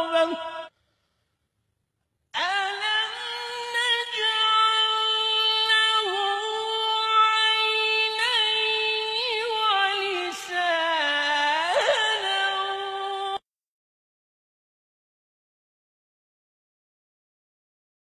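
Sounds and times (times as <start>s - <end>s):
person reciting in melodic chant: 0.0s - 0.7s, 2.4s - 13.4s.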